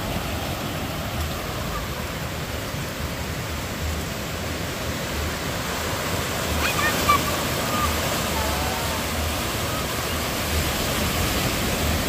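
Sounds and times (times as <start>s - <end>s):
small waves breaking on beach: 0.0s - 12.0s
high-pitched voice calling out: 6.6s - 8.8s.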